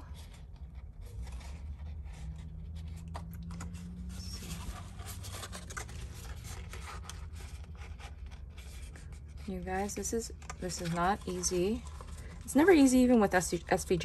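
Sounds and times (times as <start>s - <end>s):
low steady hum: 0.0s - 14.0s
paper scratching and rustling: 0.0s - 14.0s.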